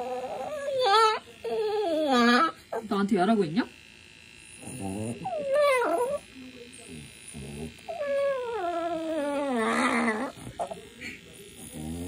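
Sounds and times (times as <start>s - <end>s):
dog howling whine: 0.0s - 2.6s, 4.7s - 6.2s, 7.9s - 10.4s
dog low grumble: 0.0s - 2.8s, 4.6s - 6.2s, 6.8s - 12.0s.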